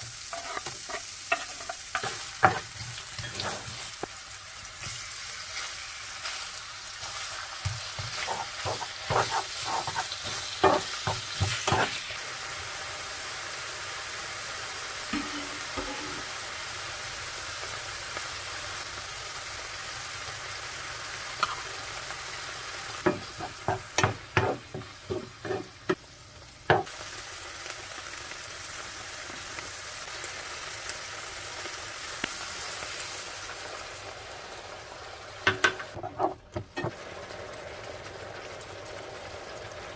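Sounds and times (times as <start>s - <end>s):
meat sizzling in frying pan: 0.0s - 39.9s
spatula scraping pan: 0.2s - 4.0s, 7.6s - 12.0s, 15.2s - 16.3s, 23.0s - 26.0s, 35.6s - 36.9s.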